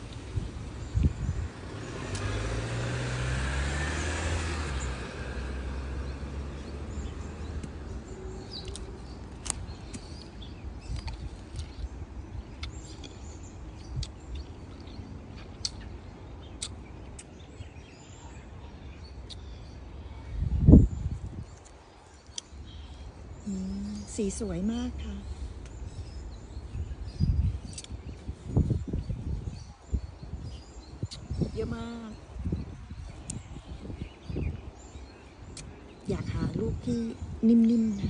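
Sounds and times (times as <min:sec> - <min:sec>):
car passing: 0:00.6 - 0:09.2.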